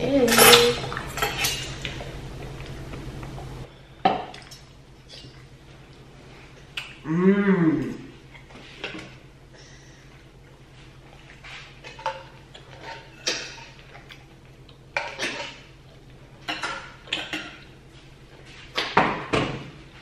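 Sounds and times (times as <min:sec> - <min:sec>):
low steady hum: 0:00.0 - 0:20.0
cutlery clinking on dishes: 0:00.2 - 0:01.7.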